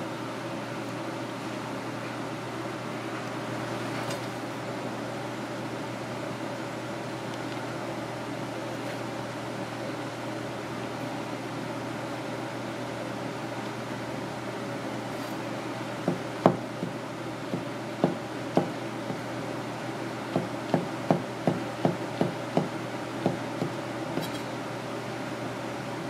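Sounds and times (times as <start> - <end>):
knife chopping on cutting board: 16.1 - 19.2, 20.3 - 24.5.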